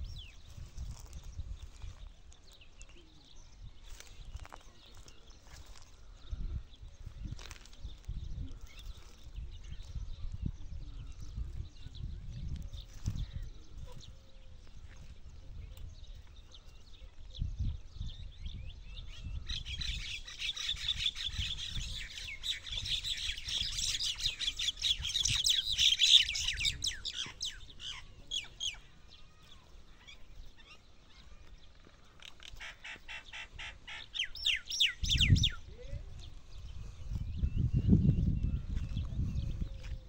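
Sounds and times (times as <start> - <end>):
small birds chirping: 0.0 - 40.0
camel rustling tree branches: 0.3 - 3.0, 3.8 - 6.1, 7.1 - 10.0.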